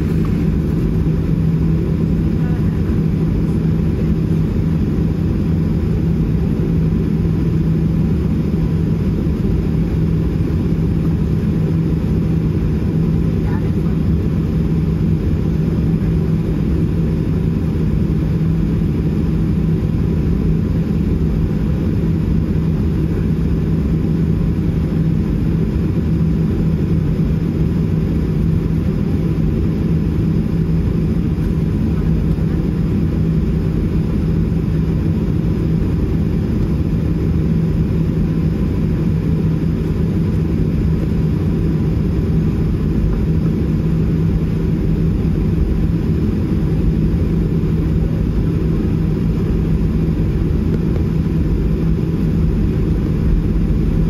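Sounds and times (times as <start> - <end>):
constant low hum: 0.0 - 54.0
vehicle rumbling: 50.8 - 54.0.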